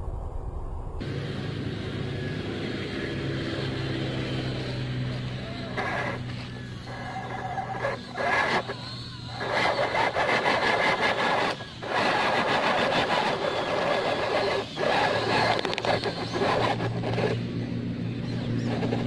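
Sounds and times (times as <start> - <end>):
electric motor and gearbox whining: 1.0 - 19.0.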